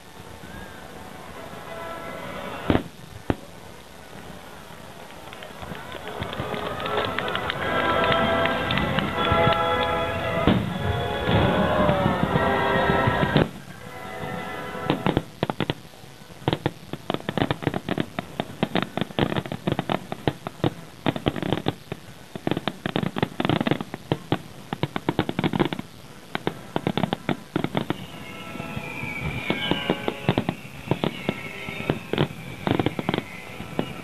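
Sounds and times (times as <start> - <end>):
fireworks bursting: 0.0 - 34.0
music: 6.7 - 13.4.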